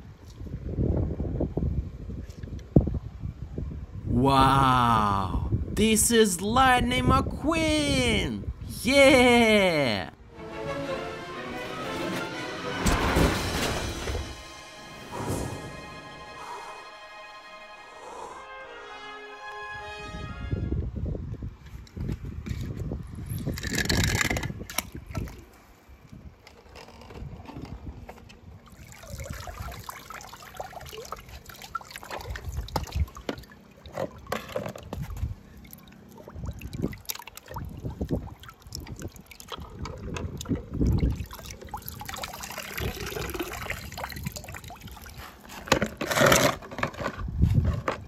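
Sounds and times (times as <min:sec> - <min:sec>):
water splashing and trickling: 0:23.2 - 0:26.0, 0:28.4 - 0:47.1
toy cars knocking and clicking: 0:23.4 - 0:24.9.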